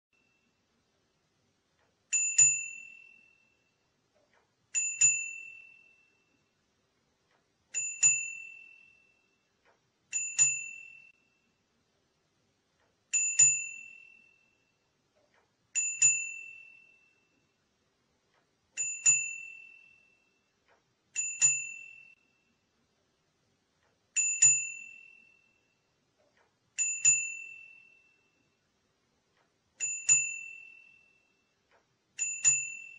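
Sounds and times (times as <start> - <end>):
bicycle bell ringing: 2.1 - 3.7, 4.8 - 6.3, 7.8 - 9.4, 10.1 - 11.4, 13.1 - 14.7, 15.8 - 17.3, 18.8 - 20.4, 21.2 - 22.5, 24.2 - 25.8, 26.8 - 28.4, 29.8 - 31.4, 32.2 - 32.9.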